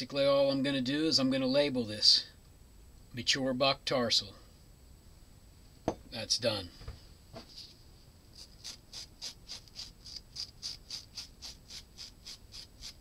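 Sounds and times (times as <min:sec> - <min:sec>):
knife cutting hair: 0:08.4 - 0:13.0.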